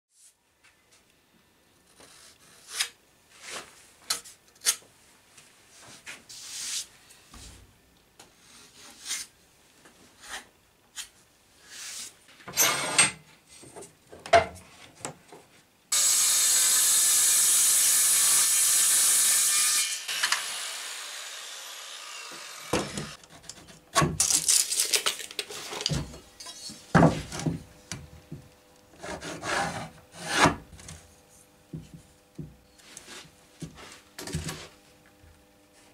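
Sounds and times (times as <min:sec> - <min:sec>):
tools scraping and knocking on wood: 0:12.4 - 0:15.5, 0:22.7 - 0:24.4, 0:25.4 - 0:31.1, 0:31.7 - 0:34.8
electric power tool motor: 0:16.0 - 0:23.2.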